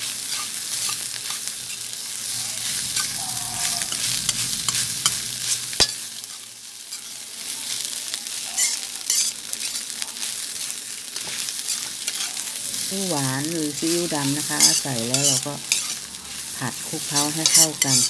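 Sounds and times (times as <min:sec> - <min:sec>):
rice sizzling in a metal pan: 0:00.0 - 0:18.0
metal ladle stirring and scraping: 0:00.2 - 0:01.9, 0:02.6 - 0:07.2, 0:08.6 - 0:09.9, 0:11.2 - 0:12.8, 0:13.8 - 0:18.0.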